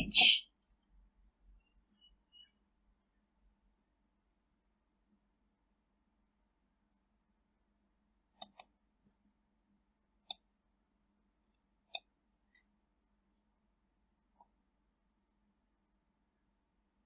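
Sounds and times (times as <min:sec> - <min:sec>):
computer mouse button clicking: 0:08.4 - 0:08.7, 0:11.9 - 0:12.1.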